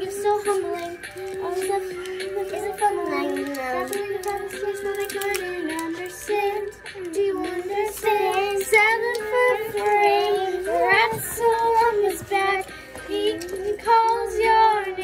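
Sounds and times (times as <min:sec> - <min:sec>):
girls singing: 0:00.0 - 0:15.0
recorded song playing: 0:00.0 - 0:15.0.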